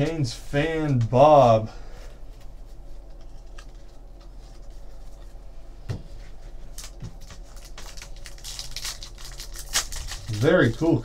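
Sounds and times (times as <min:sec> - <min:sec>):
steady low hum: 0:00.0 - 0:11.0
foil pack crinkling: 0:06.6 - 0:11.0.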